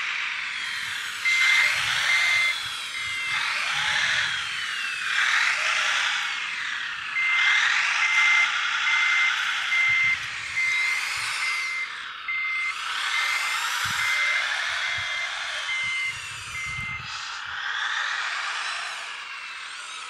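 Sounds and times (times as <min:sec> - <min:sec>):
model drive whine: 0:00.0 - 0:20.0
backup alarm beeping: 0:00.8 - 0:04.3, 0:07.1 - 0:17.1.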